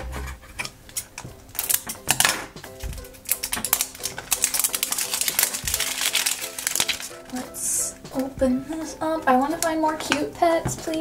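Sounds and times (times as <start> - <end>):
soft background music: 0.0 - 11.0
plastic shrink-wrap crackling: 1.5 - 8.4.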